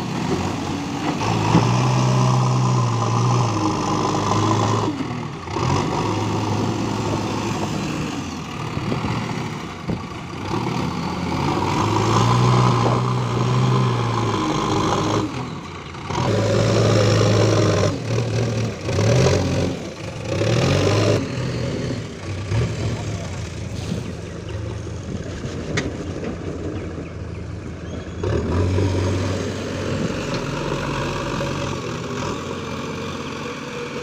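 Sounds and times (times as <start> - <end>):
loader bucket scooping soil: 0.0 - 21.3, 28.2 - 34.0
diesel engine revving under load: 0.0 - 34.0.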